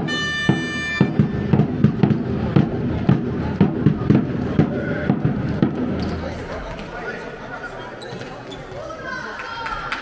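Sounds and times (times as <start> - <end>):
shoe squeak on floor: 7.8 - 8.8.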